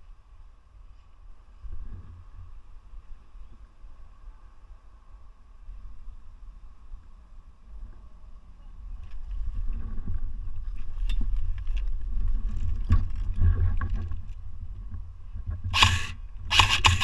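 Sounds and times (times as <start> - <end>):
rustling undergrowth: 8.8 - 17.0
short sharp burst of noise: 15.7 - 17.0.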